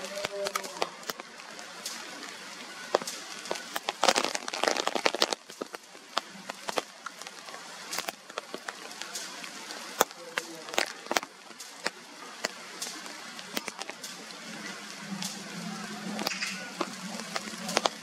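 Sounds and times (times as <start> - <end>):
rain falling: 0.0 - 18.0
raindrops ticking on surfaces: 0.0 - 18.0.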